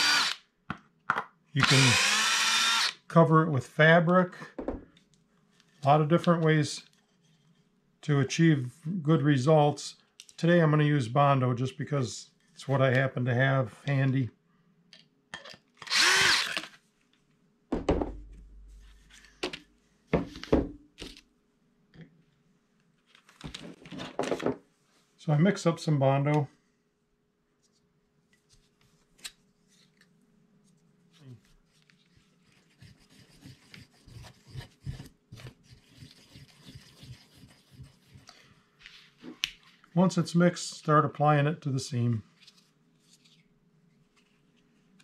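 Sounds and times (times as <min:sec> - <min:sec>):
cordless drill whirring: 0:00.0 - 0:00.4, 0:01.6 - 0:03.0, 0:15.8 - 0:16.8
wooden knocks and clunks: 0:04.6 - 0:04.9, 0:17.7 - 0:18.4.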